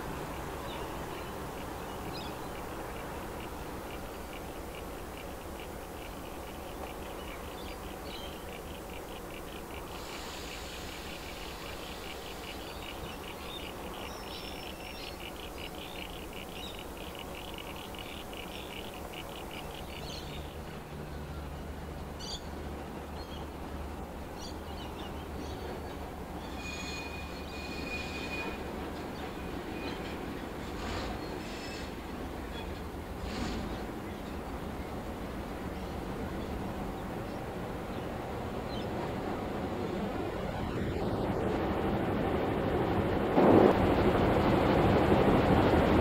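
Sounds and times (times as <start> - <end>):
diesel locomotive engine drone: 0.0 - 46.0
train wheel squeal: 25.6 - 33.9.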